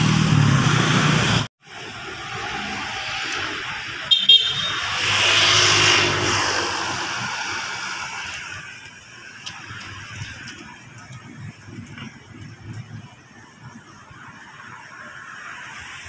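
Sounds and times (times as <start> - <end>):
car passing by: 0.0 - 10.8
car horn toots: 4.1 - 5.0.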